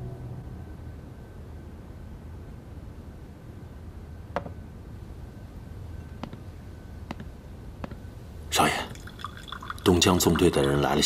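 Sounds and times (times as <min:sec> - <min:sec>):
low steady hum: 0:00.0 - 0:11.0
glass and bottle clinking: 0:08.8 - 0:11.0.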